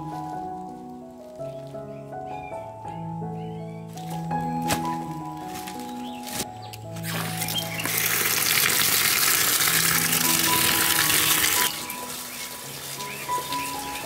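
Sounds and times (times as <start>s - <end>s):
tap water running and splashing: 7.0s - 14.0s.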